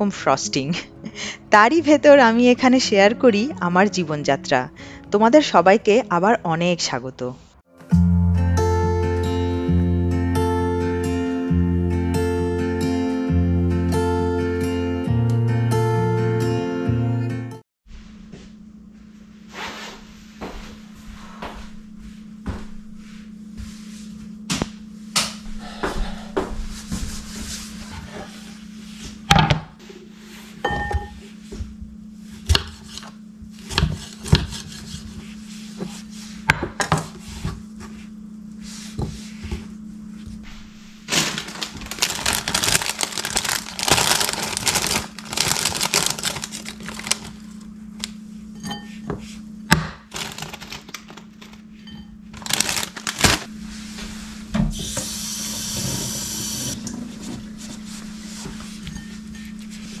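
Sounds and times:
low steady hum: 0:17.9 - 1:00.0
plastic bag crinkling: 0:41.1 - 0:47.6, 0:50.1 - 0:51.7, 0:52.3 - 0:53.5.

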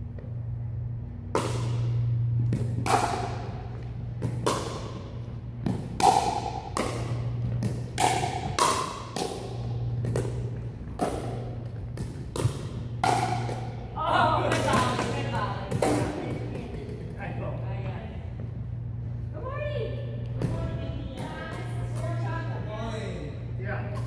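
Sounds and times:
steady low hum: 0:00.0 - 0:24.0
ball bouncing: 0:01.2 - 0:17.2, 0:20.1 - 0:22.5
paddles hitting plastic ball: 0:01.2 - 0:17.2.

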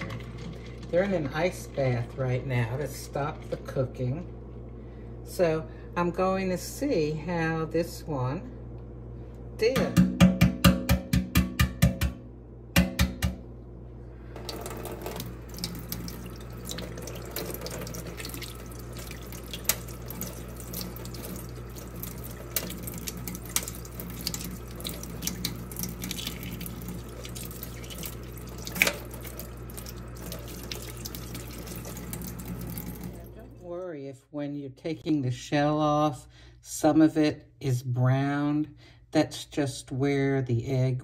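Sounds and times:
tap water running into sink: 0:00.0 - 0:02.0, 0:14.4 - 0:33.4
egg tapped on steel sink: 0:09.7 - 0:13.4.

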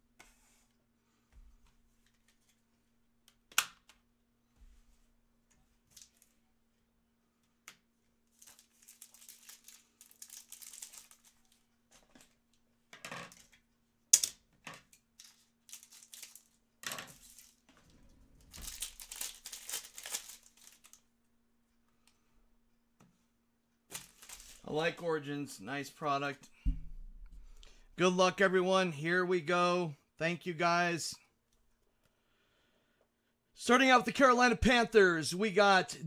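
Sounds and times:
foil wrapper crinkling and tearing: 0:08.3 - 0:11.6, 0:15.2 - 0:17.6, 0:18.4 - 0:21.0, 0:23.9 - 0:24.7.

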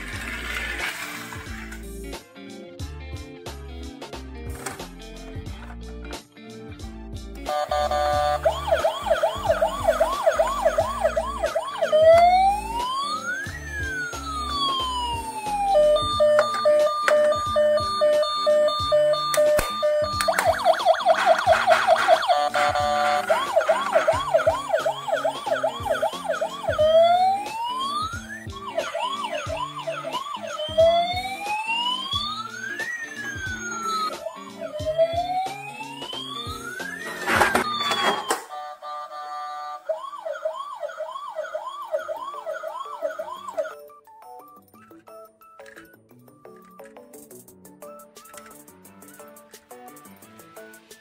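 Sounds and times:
background music: 0:00.0 - 0:51.0
toy electronic siren: 0:07.5 - 0:44.0.

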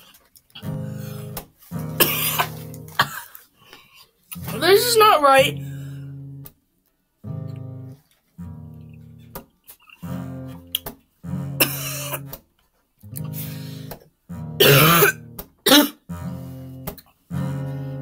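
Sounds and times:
acoustic guitar music: 0:00.0 - 0:03.4, 0:04.3 - 0:06.6, 0:07.2 - 0:18.0
person coughing: 0:01.9 - 0:03.4, 0:11.6 - 0:12.3, 0:14.6 - 0:16.0.

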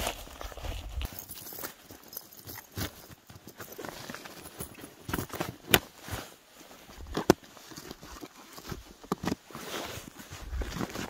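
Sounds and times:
crunching in snow: 0:00.0 - 0:01.3
metal chains clinking: 0:01.0 - 0:05.3.

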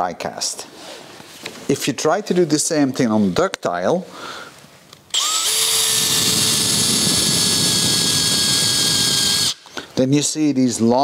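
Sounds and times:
electric drill drilling into metal: 0:05.1 - 0:09.6.

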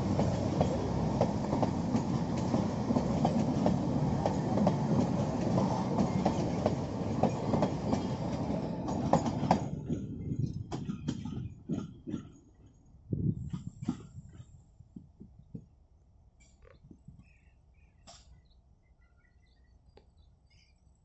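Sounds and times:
wheels clacking over rail joints: 0:00.0 - 0:12.8
train coaches rumbling past: 0:00.0 - 0:14.6.

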